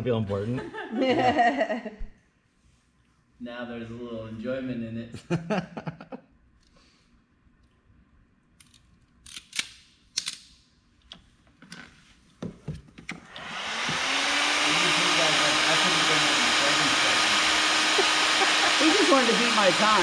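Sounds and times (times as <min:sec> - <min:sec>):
heat gun fan blowing: 0:13.2 - 0:20.0.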